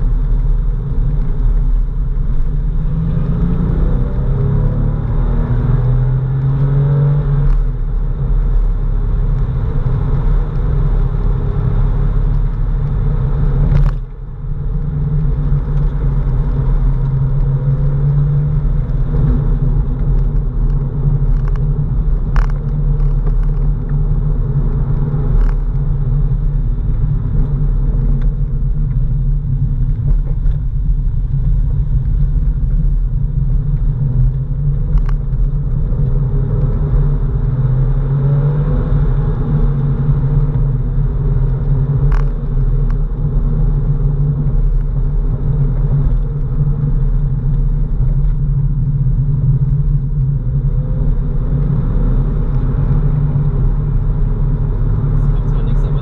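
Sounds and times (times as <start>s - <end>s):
car engine running: 0.0s - 56.0s.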